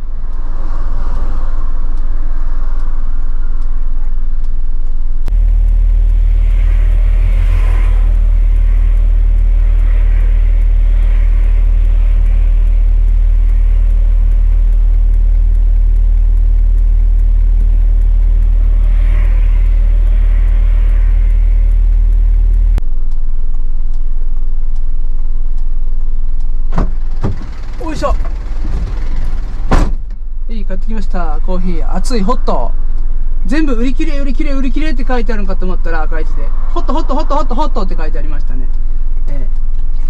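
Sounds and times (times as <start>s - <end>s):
truck engine and road rumble: 0.0s - 40.0s.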